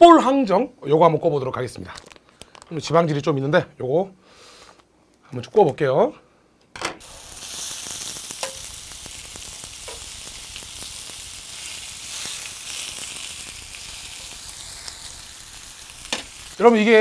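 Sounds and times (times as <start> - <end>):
meat sizzling on grill pan: 7.0 - 17.0
metal tongs clicking on pan: 8.4 - 8.7, 9.8 - 10.1.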